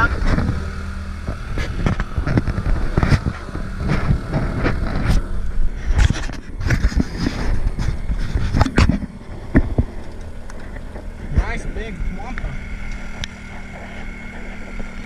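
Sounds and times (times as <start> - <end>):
boat motor humming: 0.0 - 15.0.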